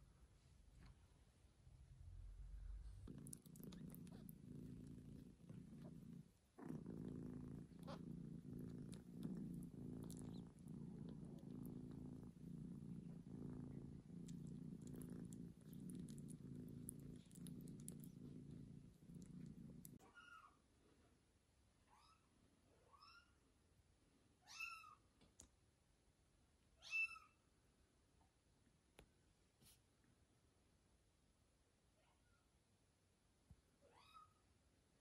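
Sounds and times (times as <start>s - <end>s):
cat purring: 2.1s - 20.0s.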